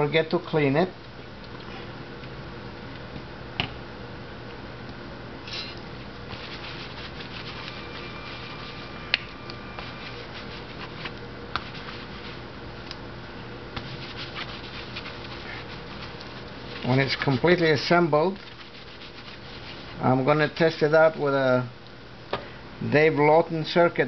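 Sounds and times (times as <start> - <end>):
steady low hum: 0.0 - 24.0
cloth rubbing on steel plate: 6.3 - 12.5, 13.8 - 20.0.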